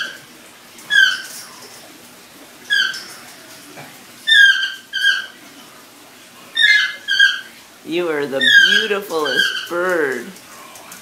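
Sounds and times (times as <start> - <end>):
parrot whistling: 2.7 - 3.0, 4.3 - 5.3, 6.6 - 7.5, 8.4 - 9.8.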